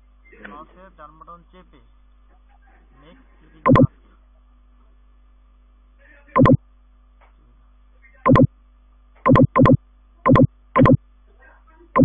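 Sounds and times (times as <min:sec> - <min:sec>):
computer alert beeps: 0:03.7 - 0:03.9, 0:06.4 - 0:06.6, 0:08.3 - 0:08.5, 0:09.3 - 0:11.0.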